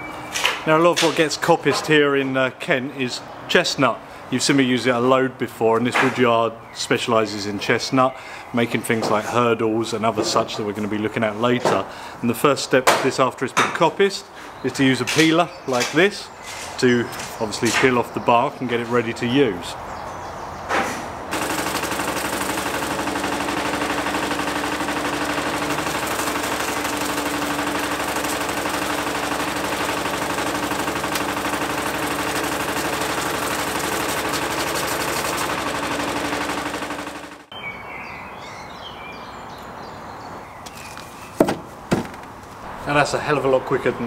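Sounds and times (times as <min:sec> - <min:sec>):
motor hum: 0:21.3 - 0:37.5
peeling machine chatter: 0:21.3 - 0:37.5.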